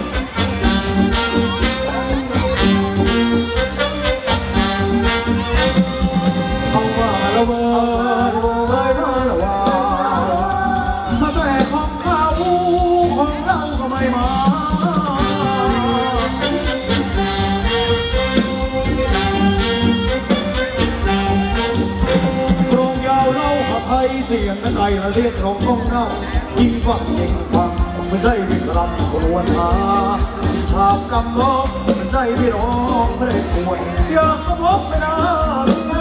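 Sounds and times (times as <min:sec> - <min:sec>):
dance band with brass and keyboard: 0:00.0 - 0:36.0
wavering lead melody: 0:00.0 - 0:36.0.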